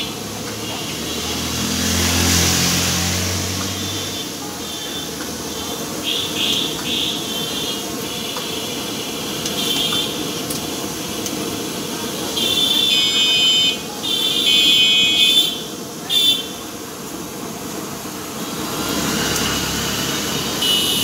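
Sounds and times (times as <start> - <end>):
food sizzling in deep-frying oil: 0.0 - 21.0
high buzzer-like tones: 3.8 - 10.3, 12.4 - 16.7.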